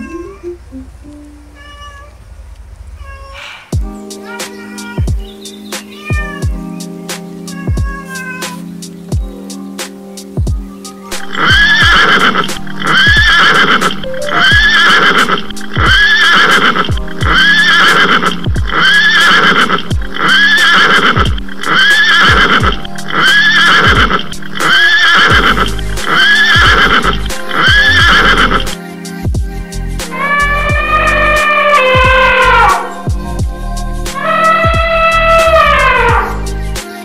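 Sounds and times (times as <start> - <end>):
music: 0.0 - 1.6, 3.7 - 37.0
horse whinny sound: 11.2 - 28.7, 30.2 - 33.0, 34.2 - 36.4.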